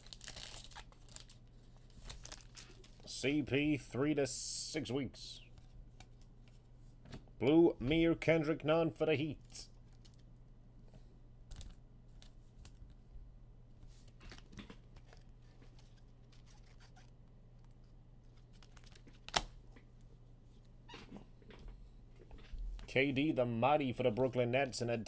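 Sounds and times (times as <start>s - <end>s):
card wrappers rustling and tearing: 0.0s - 3.1s, 17.8s - 19.6s
low steady hum: 0.0s - 25.0s.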